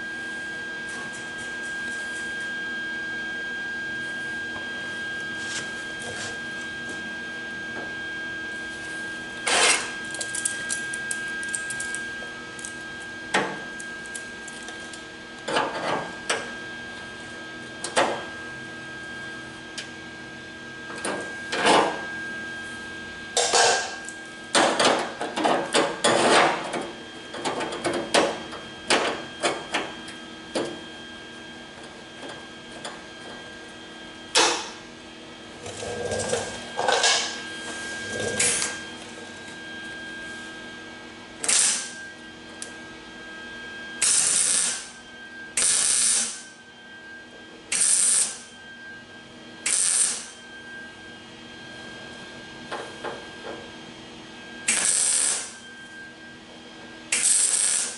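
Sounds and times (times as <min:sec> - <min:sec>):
welding arc crackle: 0:38.2 - 0:38.8, 0:41.4 - 0:42.0, 0:44.0 - 0:45.0, 0:45.6 - 0:46.4, 0:47.7 - 0:48.5, 0:49.6 - 0:50.4, 0:54.7 - 0:55.6, 0:57.1 - 0:57.9.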